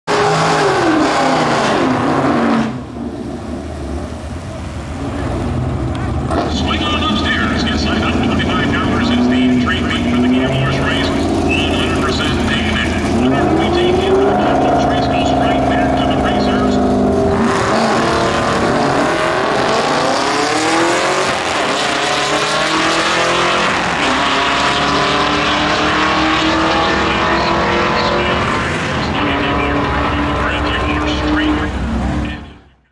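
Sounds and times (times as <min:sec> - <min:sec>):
car engines accelerating hard: 0:00.1 - 0:32.9.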